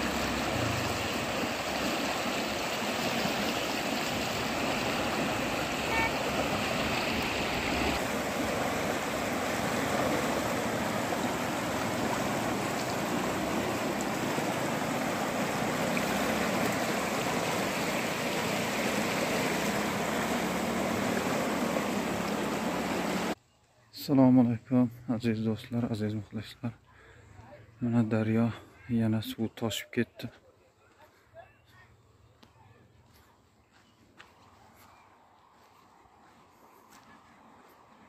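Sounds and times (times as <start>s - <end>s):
floodwater rushing: 0.0s - 23.4s
high hiss of water: 0.0s - 23.4s.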